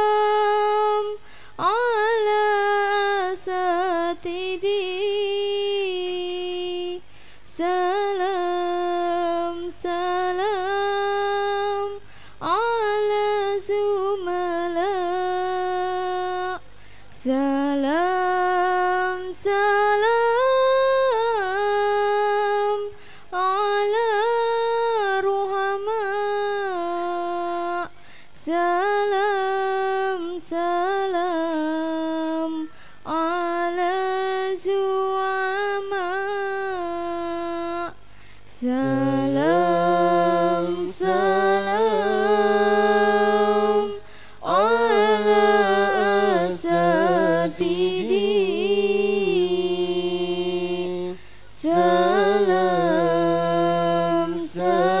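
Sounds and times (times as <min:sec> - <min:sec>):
woman chanting into a microphone: 0:00.0 - 0:55.0.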